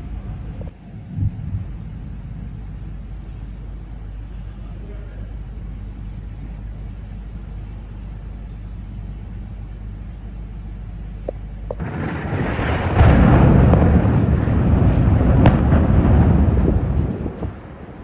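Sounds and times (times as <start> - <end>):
explosion rumble: 0.0 - 3.4, 11.7 - 18.0
low steady hum: 0.0 - 18.0.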